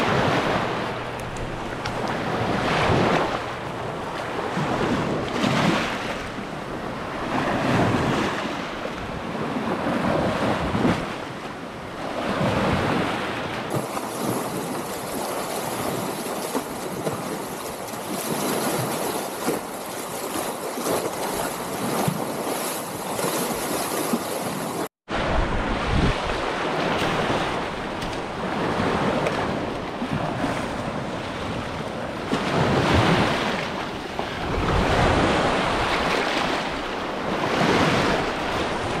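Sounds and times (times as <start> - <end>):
small waves washing over sand: 0.0 - 39.0.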